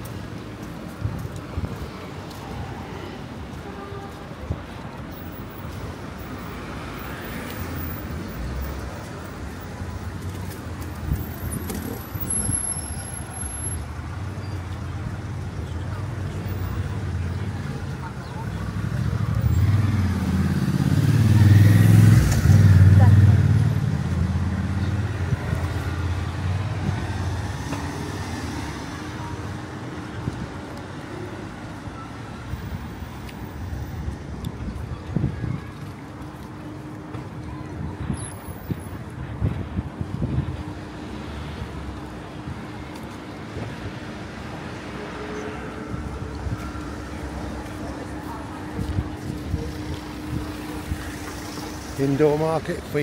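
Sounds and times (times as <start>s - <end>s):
cars passing: 0.0s - 53.0s
road noise: 0.0s - 53.0s.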